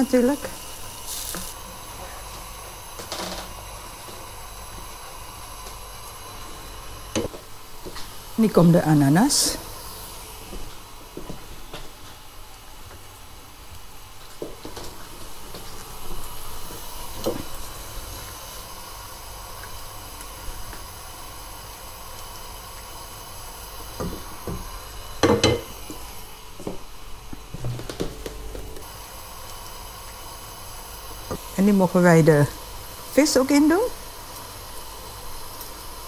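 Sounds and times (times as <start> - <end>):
broth simmering in a pan: 0.0 - 36.0.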